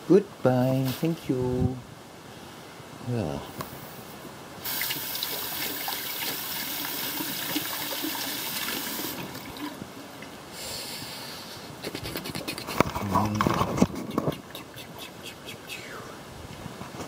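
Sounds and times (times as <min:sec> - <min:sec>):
tap water running and splashing: 0:04.6 - 0:10.3.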